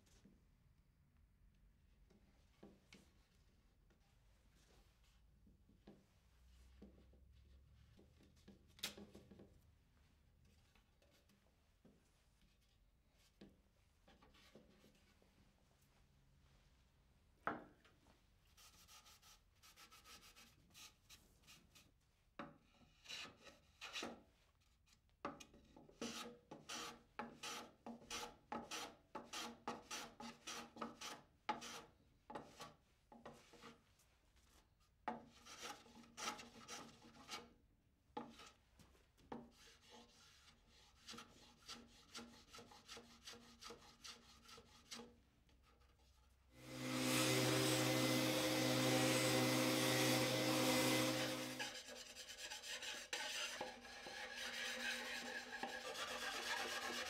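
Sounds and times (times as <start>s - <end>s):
hand tool rubbing wood: 46.6s - 57.0s.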